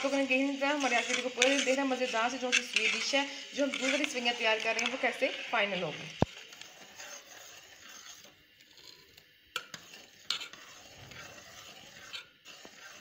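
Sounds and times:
spoon stirring in a pot: 0.0 - 5.5, 6.2 - 13.0.

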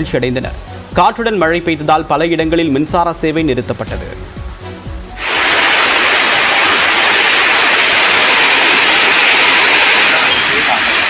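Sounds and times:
heavy rain pouring: 5.1 - 11.0.

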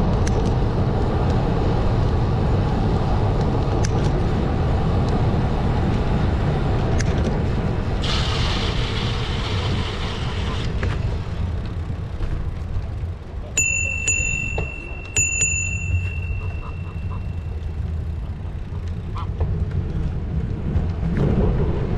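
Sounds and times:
bicycle bell ringing: 13.5 - 18.2
wind on microphone: 18.6 - 21.9.

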